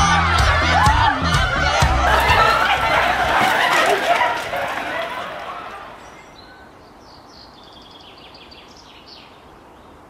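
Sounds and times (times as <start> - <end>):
faint outdoor background: 0.0 - 10.0
birds chirping: 2.1 - 10.0.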